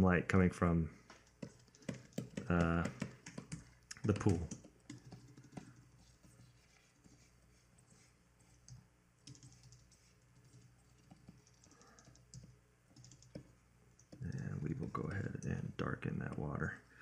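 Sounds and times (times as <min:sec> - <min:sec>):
low steady hum: 0:00.0 - 0:17.0
keyboard keys clicking: 0:01.2 - 0:05.8, 0:08.7 - 0:14.6.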